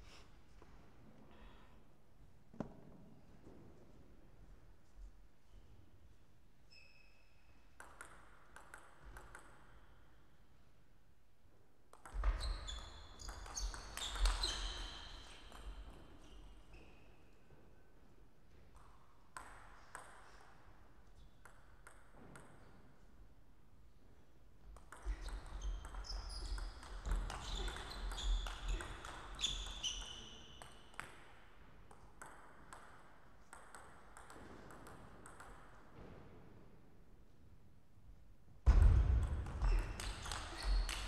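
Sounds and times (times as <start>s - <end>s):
ball bouncing: 7.8s - 9.7s, 11.9s - 14.7s, 21.4s - 22.8s, 24.7s - 31.3s, 31.9s - 36.3s, 38.7s - 41.0s
table tennis ball hits: 7.8s - 9.7s, 38.7s - 41.0s.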